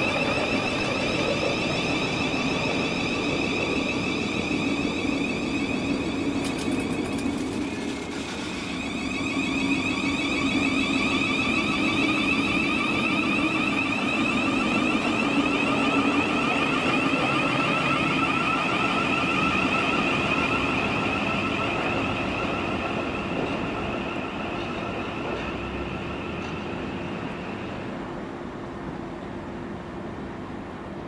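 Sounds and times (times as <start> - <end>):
electric train whine: 0.0 - 31.0.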